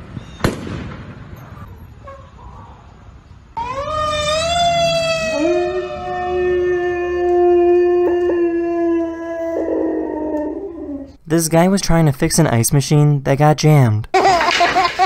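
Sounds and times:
second lower dog howl: 3.6s - 11.1s
dog howling: 3.6s - 11.2s.

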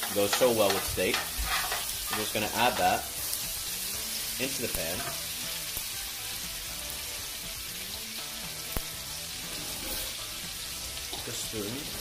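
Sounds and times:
steaks sizzling in a pan: 0.0s - 12.0s.

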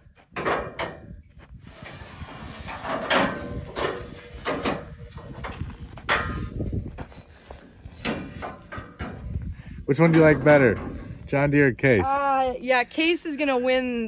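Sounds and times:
metal ladder clunks and rattles: 2.7s - 11.2s.

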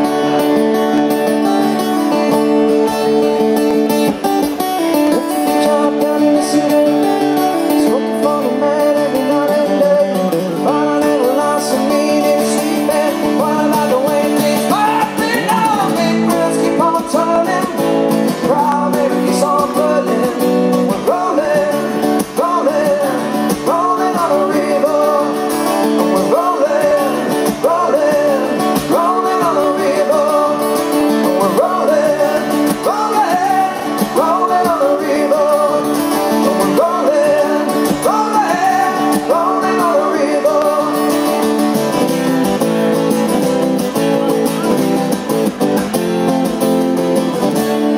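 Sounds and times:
acoustic guitars strumming: 0.0s - 47.9s
men singing into microphones: 5.2s - 41.4s.

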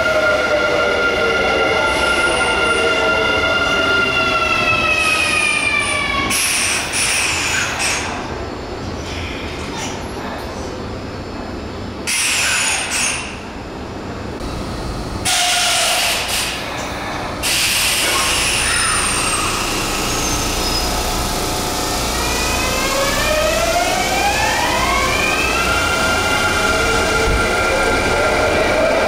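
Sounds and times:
train traction motor whine: 14.3s - 29.0s.

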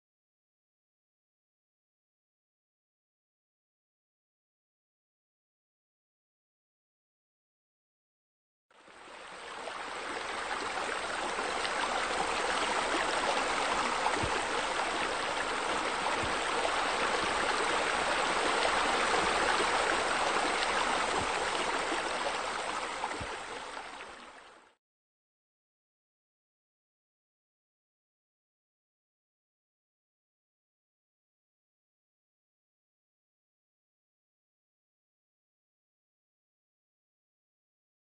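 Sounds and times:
running water splashing: 9.3s - 24.5s.

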